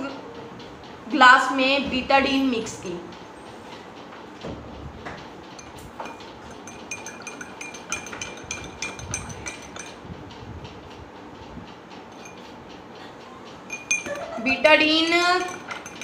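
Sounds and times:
spoon clinking in glass: 5.6s - 10.0s, 13.7s - 16.0s.

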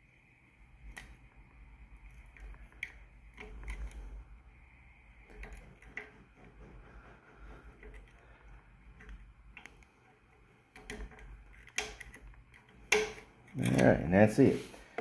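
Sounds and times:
small metal parts clicking: 2.0s - 4.2s, 5.2s - 6.1s, 7.8s - 13.9s.

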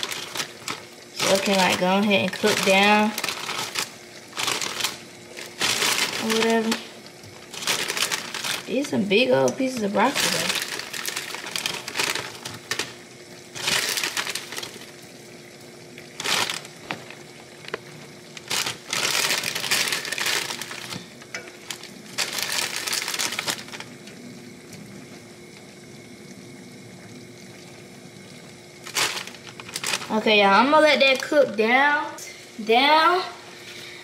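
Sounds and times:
plastic bag crinkling: 0.0s - 15.1s, 16.0s - 24.0s, 28.8s - 31.6s
faint steady hum: 0.0s - 34.0s.

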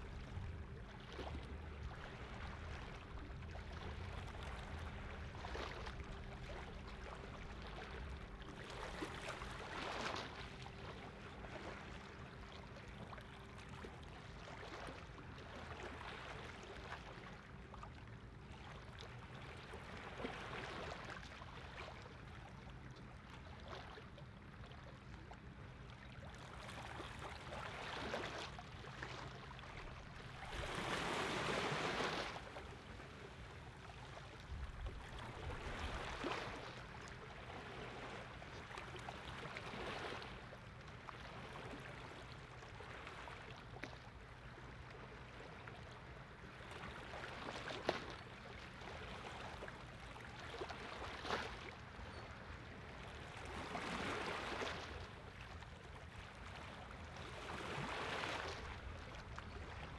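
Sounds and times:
small waves washing: 0.0s - 17.8s, 26.3s - 59.9s
boat engine hum: 21.6s - 47.1s.

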